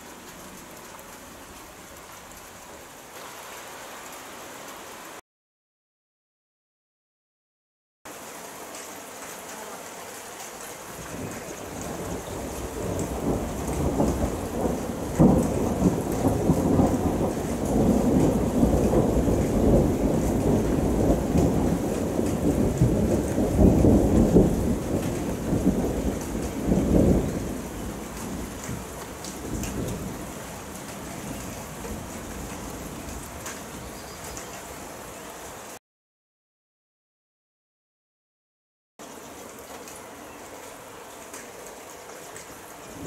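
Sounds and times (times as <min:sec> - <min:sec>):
steady rain: 0:00.0 - 0:05.2, 0:08.1 - 0:35.8, 0:39.0 - 0:43.0
thunder rumbling: 0:11.0 - 0:30.3.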